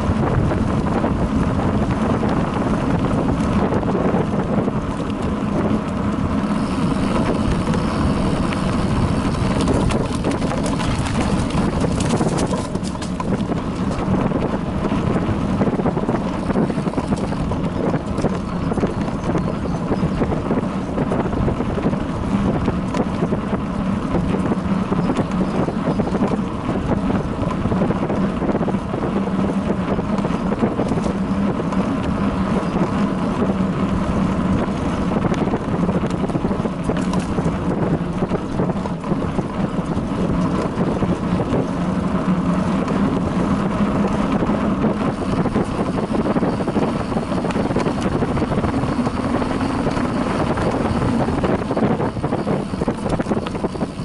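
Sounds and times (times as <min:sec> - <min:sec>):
bicycle tyres rumbling on dirt: 0:00.0 - 0:54.0
wind buffeting microphone: 0:00.0 - 0:54.0
small rattles: 0:06.5 - 0:20.3.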